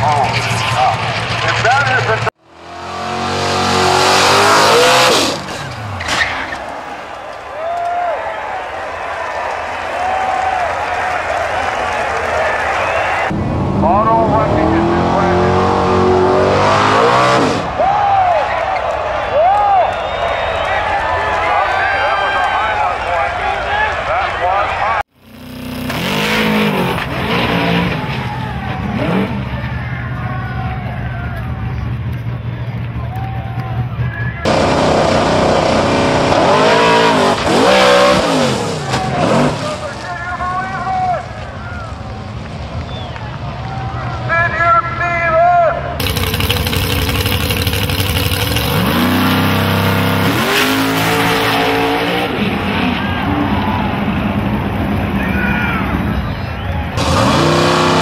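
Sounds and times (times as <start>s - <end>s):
car engine revving: 0.1s - 6.1s, 13.3s - 17.7s, 25.2s - 29.6s, 34.5s - 39.8s, 46.0s - 56.2s, 57.0s - 58.0s.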